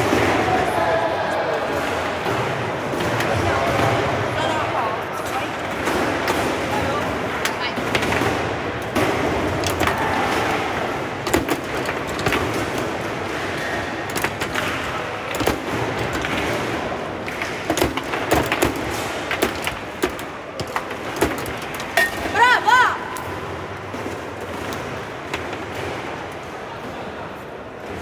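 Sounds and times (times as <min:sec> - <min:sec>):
background hubbub: 0:00.0 - 0:28.0
foosball ball clacking: 0:05.8 - 0:22.3.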